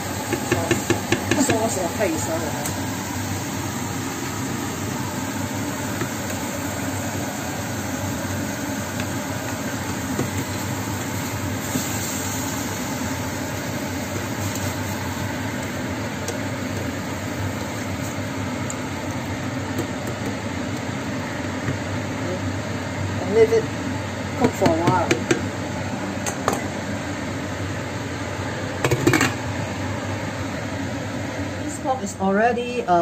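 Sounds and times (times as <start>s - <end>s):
machine hum: 0.0s - 33.0s
hiss: 9.8s - 13.6s.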